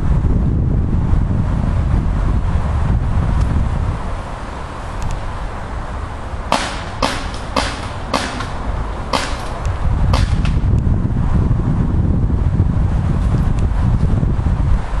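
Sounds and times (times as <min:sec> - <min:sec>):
wind rumble on microphone: 0:00.0 - 0:15.0
paintball markers firing: 0:06.5 - 0:10.6.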